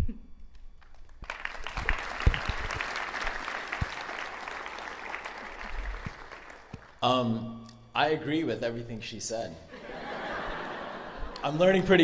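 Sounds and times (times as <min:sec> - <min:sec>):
audience applauding: 0:00.8 - 0:07.0.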